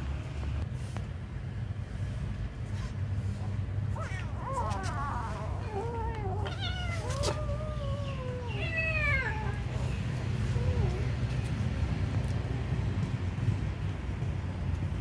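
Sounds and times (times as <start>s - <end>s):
low steady rumble: 0.0s - 15.0s
kittens meowing: 3.9s - 11.3s.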